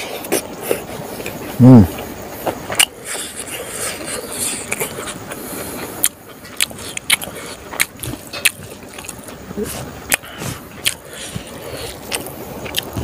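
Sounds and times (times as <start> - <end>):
chewing and lip-smacking: 0.0 - 13.0
wet mouth clicks: 4.6 - 5.2, 6.0 - 9.3, 10.1 - 13.0.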